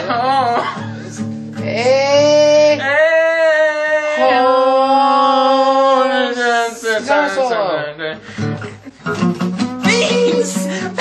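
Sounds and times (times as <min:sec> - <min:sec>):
acoustic guitar strumming: 0:00.0 - 0:02.9, 0:08.2 - 0:11.0
man singing high notes: 0:01.6 - 0:07.0.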